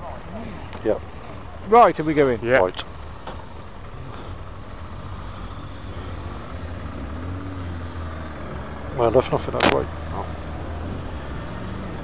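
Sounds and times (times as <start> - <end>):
motorcycle engine: 0.0 - 12.0.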